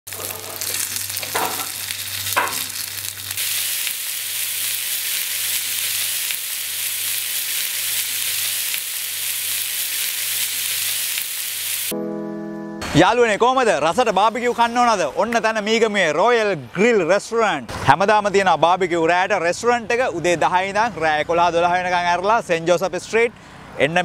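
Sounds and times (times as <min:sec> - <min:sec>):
meat sizzling on grill: 0:00.1 - 0:11.9.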